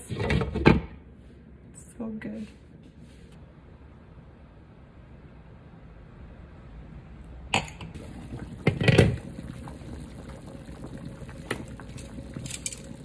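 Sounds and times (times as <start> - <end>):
soup simmering: 7.9 - 13.0.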